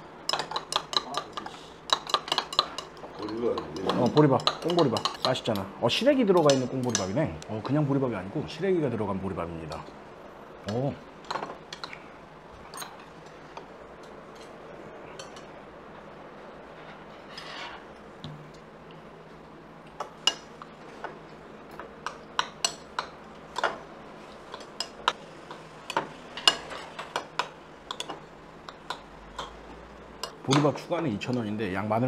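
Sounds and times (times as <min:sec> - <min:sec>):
low room hum: 0:00.0 - 0:32.0
cutlery clinking against bowl: 0:00.3 - 0:05.6, 0:06.4 - 0:07.7, 0:12.7 - 0:13.1, 0:14.3 - 0:15.5, 0:19.9 - 0:23.8, 0:24.4 - 0:31.5.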